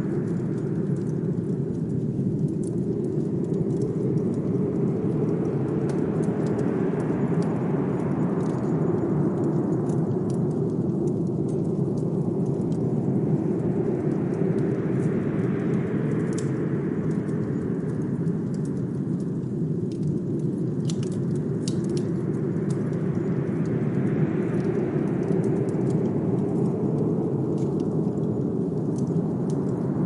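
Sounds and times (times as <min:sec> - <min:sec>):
fireplace crackling: 0:00.0 - 0:07.7, 0:08.4 - 0:15.1, 0:17.1 - 0:30.0
blizzard wind rumbling: 0:00.0 - 0:30.0.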